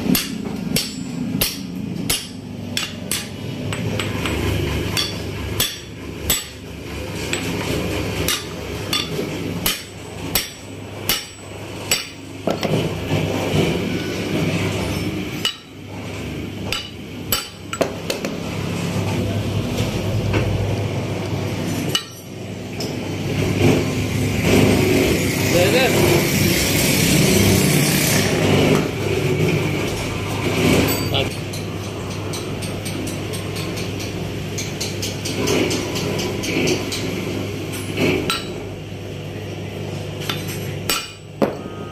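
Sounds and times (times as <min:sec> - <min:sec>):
hammer striking steel: 0:00.0 - 0:06.6, 0:08.2 - 0:12.8, 0:14.9 - 0:15.8, 0:16.6 - 0:18.4, 0:21.9 - 0:22.2, 0:38.2 - 0:38.6, 0:40.3 - 0:41.9
steady low hum: 0:00.0 - 0:34.4.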